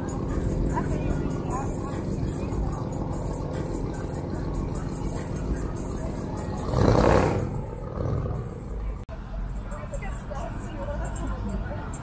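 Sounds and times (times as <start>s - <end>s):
vehicle engine surging past: 0.0s - 9.0s
street traffic rumbling: 0.0s - 12.0s.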